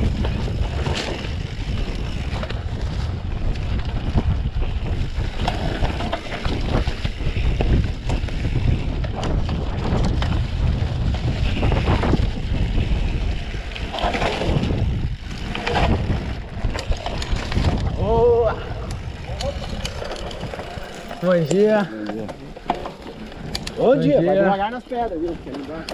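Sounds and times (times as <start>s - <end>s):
mountain bike rumbling and rattling: 0.0s - 25.9s
wind buffeting microphone: 0.0s - 25.9s.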